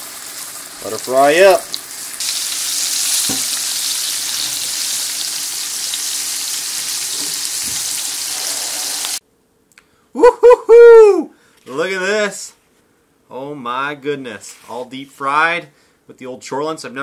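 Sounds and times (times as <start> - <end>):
battered meat frying in hot oil: 0.0 - 9.2.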